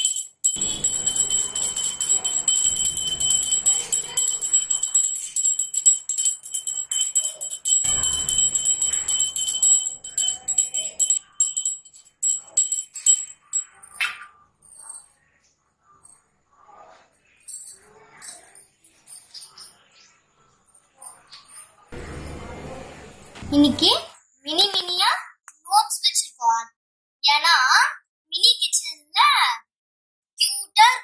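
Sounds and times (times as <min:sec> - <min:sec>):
brass hand bell ringing: 0:00.0 - 0:14.0, 0:22.0 - 0:23.4.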